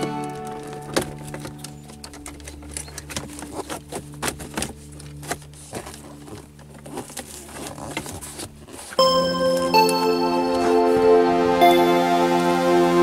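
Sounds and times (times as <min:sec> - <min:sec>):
plastic trim clicks and rattles: 0:00.8 - 0:05.4.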